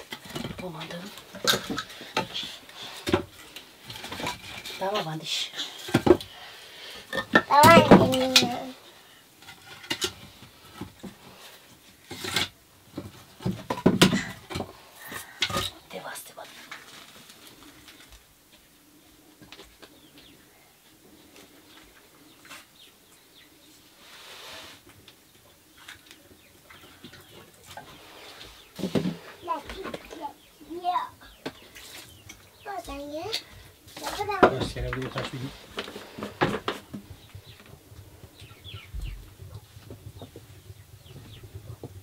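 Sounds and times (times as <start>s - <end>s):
birds chirping: 17.5s - 24.1s, 25.0s - 42.0s
chickens chirping: 37.0s - 42.0s.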